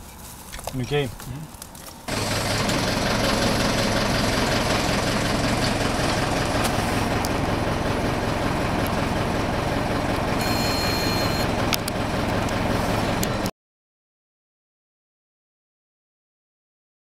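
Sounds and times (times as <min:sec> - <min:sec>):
truck engine idling: 0:00.0 - 0:13.5
thin high tone: 0:10.4 - 0:11.6.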